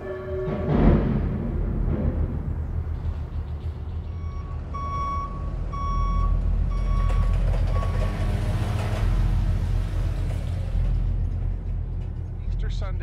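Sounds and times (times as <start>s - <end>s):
low engine rumble: 0.0s - 13.0s
reversing alarm beeps: 4.1s - 8.1s.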